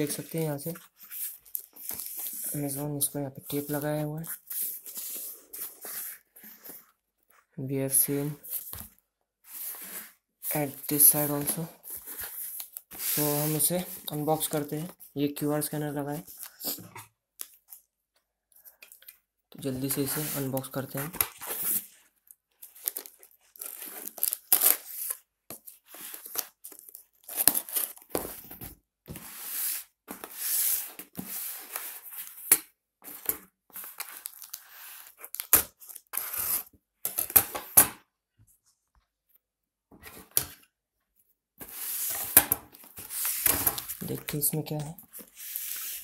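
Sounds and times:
packing tape ripping: 22.8s - 25.2s.

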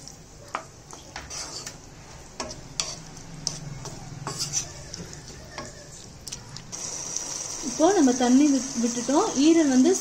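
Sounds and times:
wooden spatula scraping a pan: 0.9s - 5.8s.

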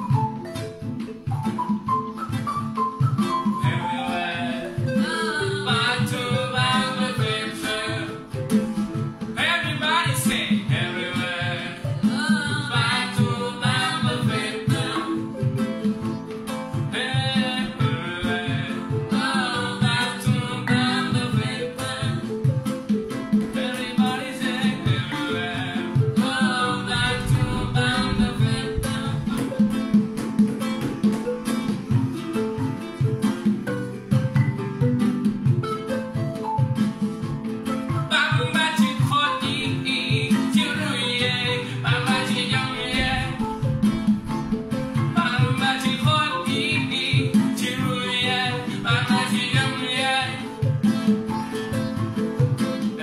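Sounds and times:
plucked guitar: 0.0s - 53.0s
person singing: 3.5s - 30.2s, 38.0s - 53.0s.

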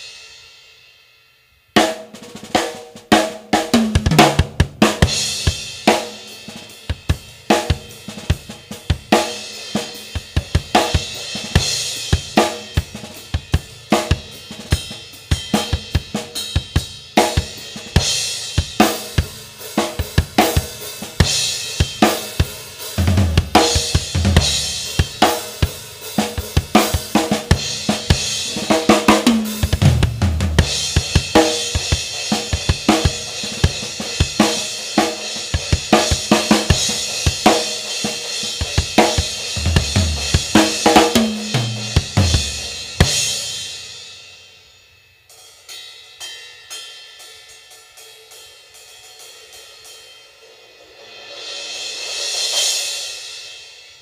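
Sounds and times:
drum kit steady beat: 0.0s - 1.0s, 1.6s - 54.0s
low drum fills: 3.7s - 5.8s, 23.0s - 25.3s, 26.6s - 34.4s, 38.7s - 43.3s
crash cymbal ringing: 42.8s - 54.0s.

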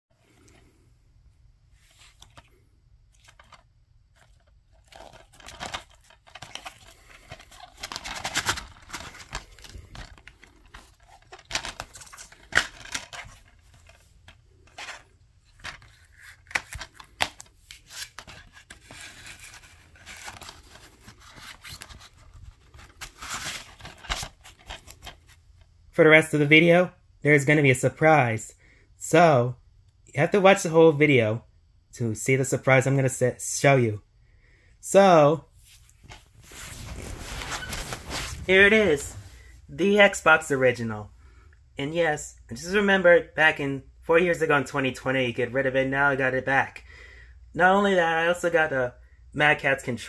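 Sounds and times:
scraping and rustling: 1.8s - 25.4s, 35.6s - 39.5s
plastic dvd case clicks and snaps: 15.6s - 18.4s.

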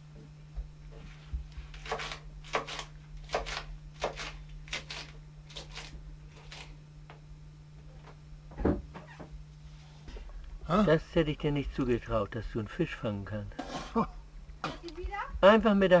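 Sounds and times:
steady low hum: 0.0s - 16.0s
knife chopping lettuce on board: 1.6s - 6.7s.

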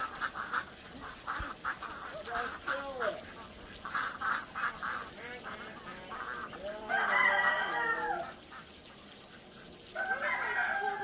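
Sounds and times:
ducks quacking: 0.0s - 11.0s
rooster crowing: 6.8s - 8.4s, 10.0s - 11.0s.

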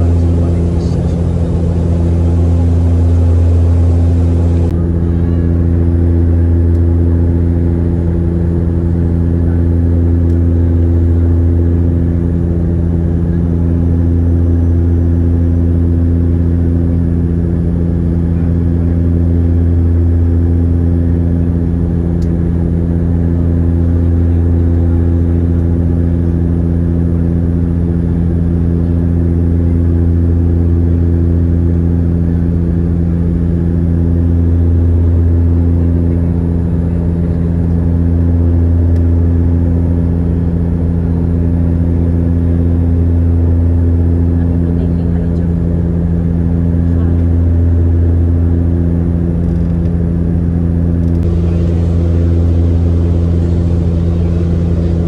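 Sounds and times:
airliner engine drone: 0.0s - 55.0s.

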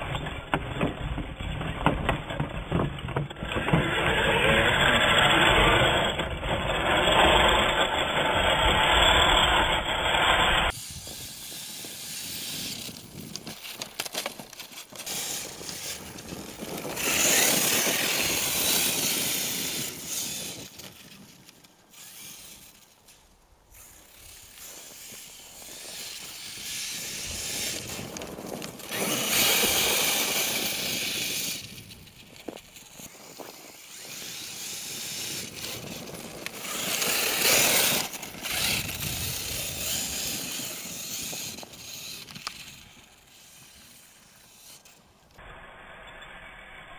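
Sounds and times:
tyres churning snow: 0.0s - 46.8s
electric motor whining: 3.5s - 13.1s, 15.0s - 21.1s, 23.8s - 44.9s.

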